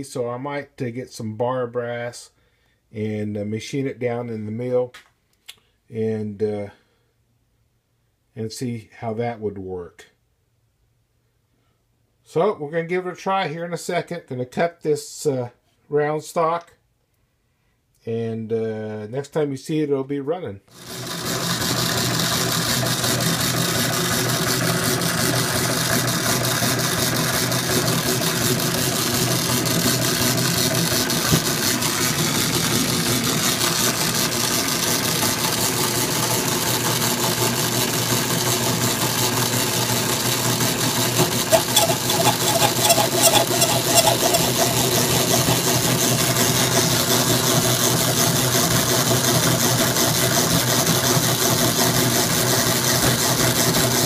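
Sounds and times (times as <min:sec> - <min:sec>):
power hacksaw cutting metal: 0:40.7 - 0:47.0
clicking and rattling: 0:41.2 - 0:46.0.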